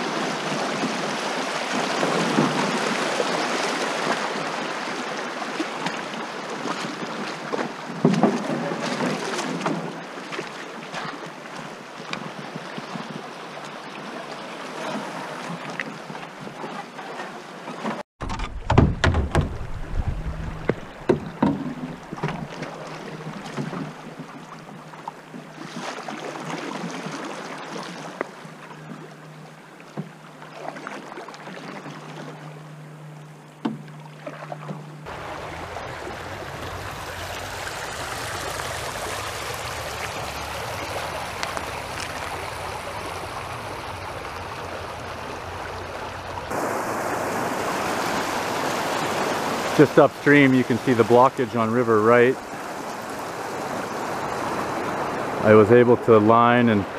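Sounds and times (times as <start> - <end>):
paddle strokes in water: 0.0 - 56.9
shallow river over gravel: 0.0 - 56.9
paddle knocking on canoe hull: 17.8 - 24.4.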